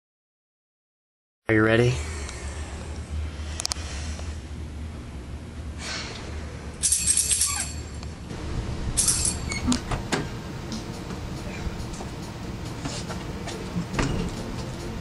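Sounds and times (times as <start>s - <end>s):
metallic jingling: 6.8s - 8.0s, 9.0s - 9.7s.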